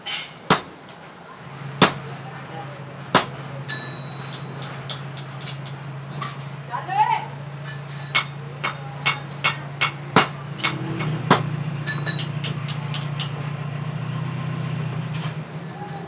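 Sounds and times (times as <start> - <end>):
hammer striking chisel on metal: 0.0 - 1.0, 1.8 - 2.1, 3.1 - 5.8, 7.6 - 13.6.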